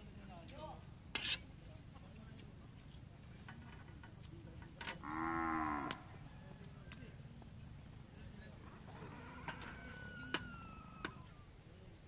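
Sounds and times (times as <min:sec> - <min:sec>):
cow mooing: 0:05.0 - 0:06.0, 0:08.9 - 0:10.2.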